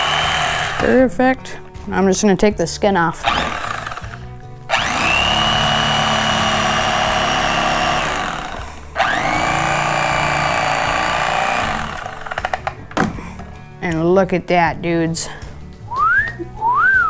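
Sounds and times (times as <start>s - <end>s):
electric fillet knife whining: 0.0s - 1.0s, 3.2s - 12.7s.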